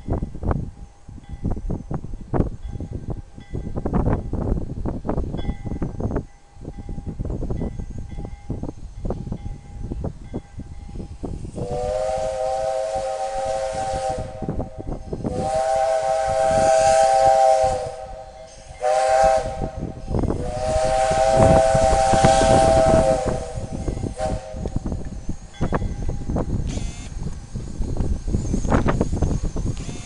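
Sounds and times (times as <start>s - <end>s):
steam locomotive chuffing: 8.0s - 30.0s
steam hissing: 10.9s - 30.0s
steam whistle blasts: 11.5s - 25.0s.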